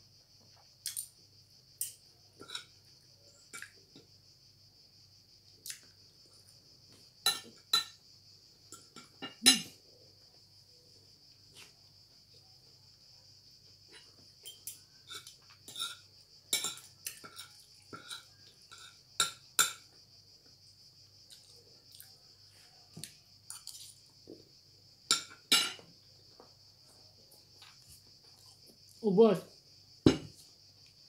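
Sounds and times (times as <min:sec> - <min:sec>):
cutlery clinking on plate: 0:07.2 - 0:08.0, 0:25.1 - 0:25.8
chewing and mouth noises: 0:21.3 - 0:22.2.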